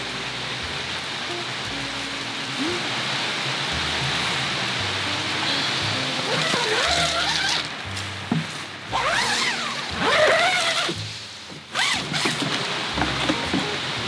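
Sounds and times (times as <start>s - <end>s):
bass line: 0.0s - 11.2s
person singing: 1.1s - 3.4s, 4.8s - 7.1s.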